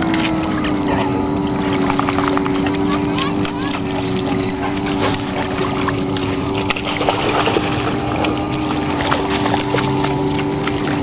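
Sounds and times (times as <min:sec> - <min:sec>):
dog splashing through water: 0:00.0 - 0:11.0
steady low hum: 0:00.0 - 0:11.0.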